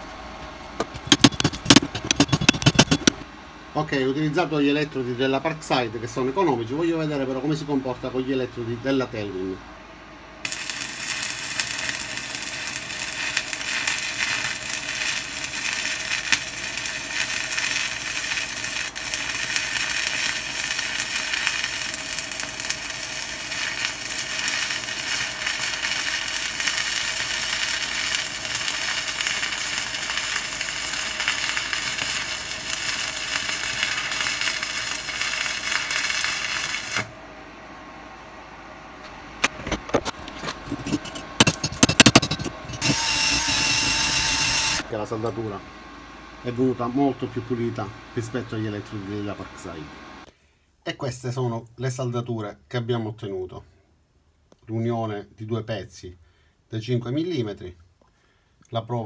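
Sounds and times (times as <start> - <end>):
welding arc crackling and sizzling: 10.4 - 37.2, 39.4 - 45.6, 46.4 - 50.3.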